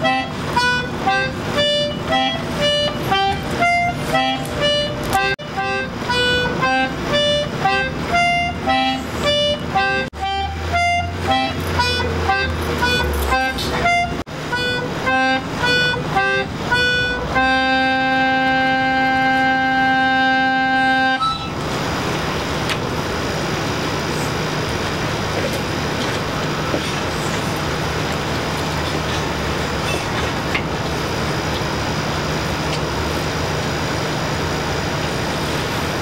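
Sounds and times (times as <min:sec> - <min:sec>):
concertina melody: 0:00.0 - 0:21.8.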